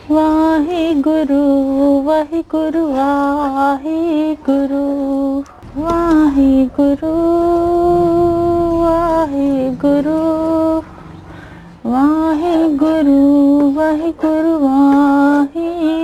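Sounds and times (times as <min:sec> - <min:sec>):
woman singing long notes: 0:00.0 - 0:10.9.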